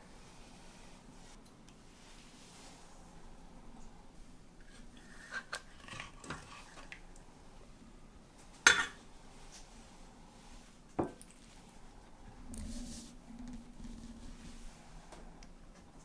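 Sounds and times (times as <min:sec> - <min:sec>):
dishes and utensils clinking: 0:08.6 - 0:09.0.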